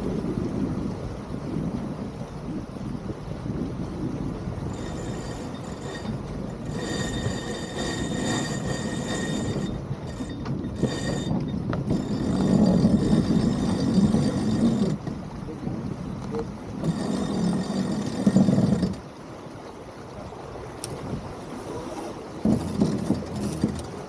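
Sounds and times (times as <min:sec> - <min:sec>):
water rushing past a hull: 0:00.0 - 0:24.0
wind on microphone: 0:00.0 - 0:24.0.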